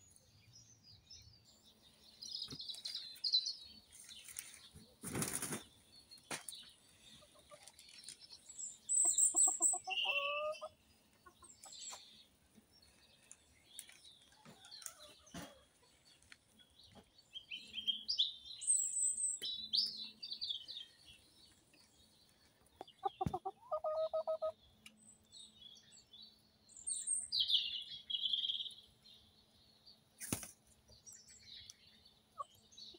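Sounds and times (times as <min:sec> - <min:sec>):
small birds chirping: 0:00.0 - 0:32.9
chickens clucking: 0:04.2 - 0:12.9, 0:13.8 - 0:17.2, 0:22.5 - 0:25.0.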